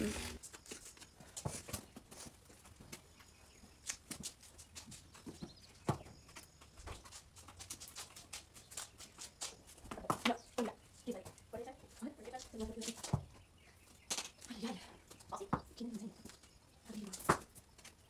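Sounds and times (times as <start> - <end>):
hoof pick scraping: 0.0 - 10.2.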